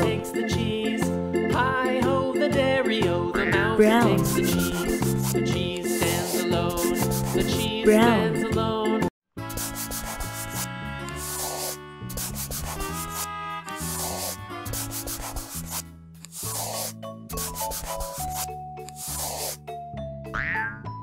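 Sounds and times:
children's instrumental music: 0:00.0 - 0:21.0
marker scratching on paper: 0:04.2 - 0:07.6, 0:09.5 - 0:19.6.

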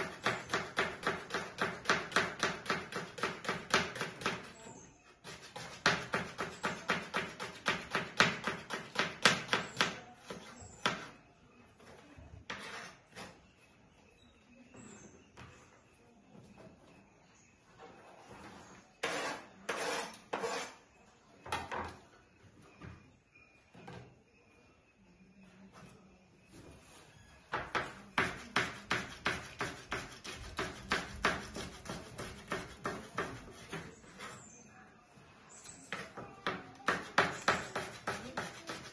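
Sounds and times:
knife chopping on wooden board: 0:00.0 - 0:04.5, 0:05.2 - 0:11.1, 0:27.6 - 0:33.9, 0:36.9 - 0:38.9
knife chopping on cutting board: 0:27.7 - 0:33.8, 0:36.9 - 0:38.8.

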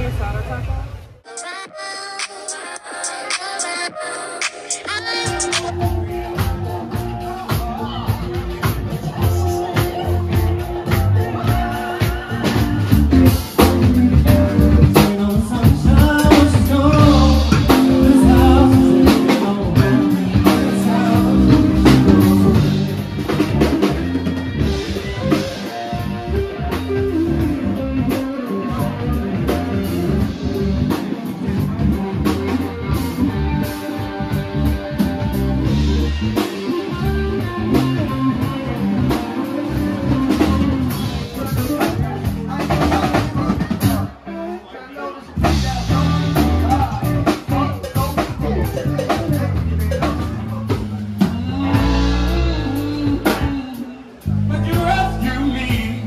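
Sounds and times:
person singing: 0:01.3 - 0:08.2, 0:09.1 - 0:23.8, 0:51.2 - 0:56.0
band music with drums and guitar: 0:01.3 - 0:44.6, 0:45.2 - 0:56.0.

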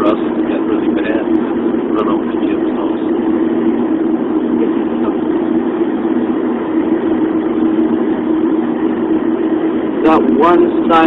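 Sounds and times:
engine drone: 0:00.0 - 0:11.0.

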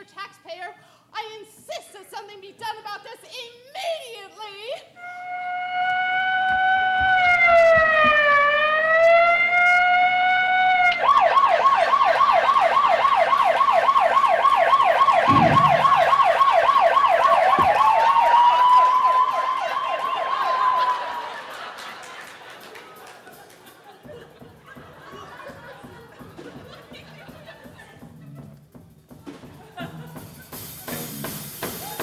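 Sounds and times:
police siren wailing and yelping: 0:05.0 - 0:21.1
dull thump: 0:15.3 - 0:16.4, 0:17.5 - 0:18.0.

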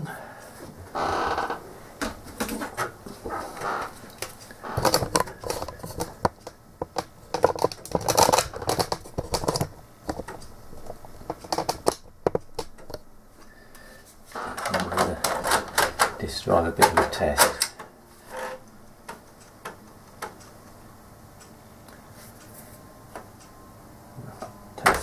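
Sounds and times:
floppy drive clicking: 0:14.3 - 0:18.0.

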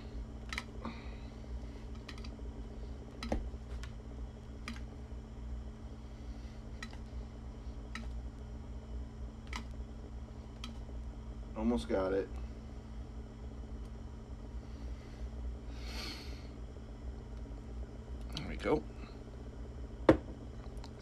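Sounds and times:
low steady hum: 0:00.0 - 0:21.0
light clicks and taps: 0:06.8 - 0:07.0.

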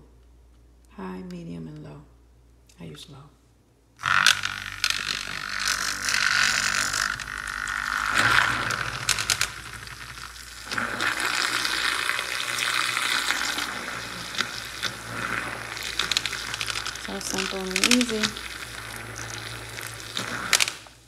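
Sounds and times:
milk frother motor whirring: 0:04.0 - 0:21.0
whisk splashing coffee: 0:08.1 - 0:21.0.

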